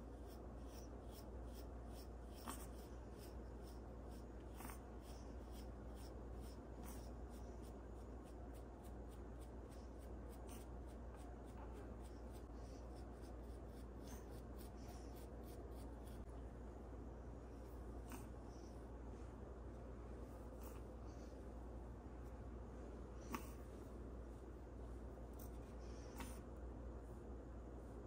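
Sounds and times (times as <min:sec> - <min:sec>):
toothbrush brushing fur: 0:00.0 - 0:16.3
steady low hum: 0:00.0 - 0:28.0.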